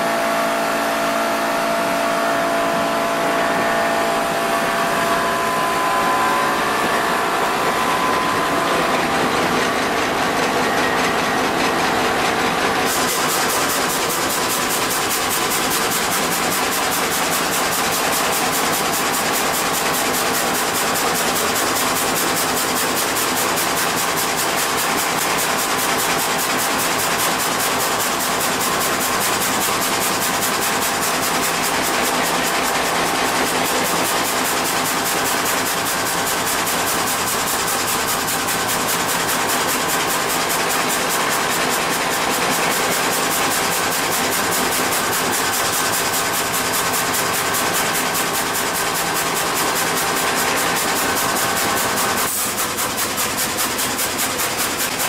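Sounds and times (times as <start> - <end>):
pitched saw whine: 0.0 - 24.1
sawmill saw cutting log: 0.0 - 55.0.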